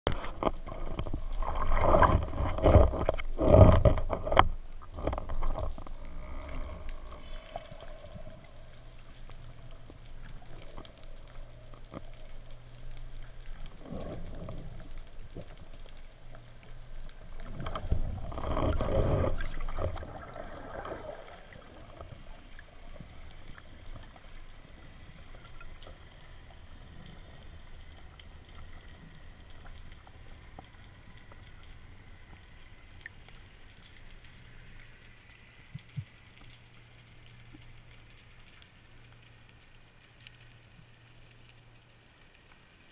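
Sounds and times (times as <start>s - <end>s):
rushing water: 0.1s - 31.9s
muffled underwater ambience: 0.1s - 42.9s
water splashing and sloshing: 0.1s - 42.9s.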